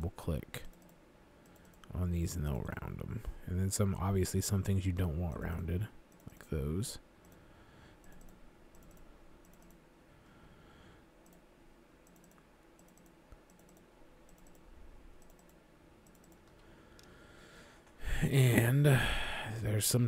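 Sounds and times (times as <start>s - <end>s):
computer mouse clicks: 0.6s - 1.9s, 8.0s - 9.8s, 11.2s - 17.2s.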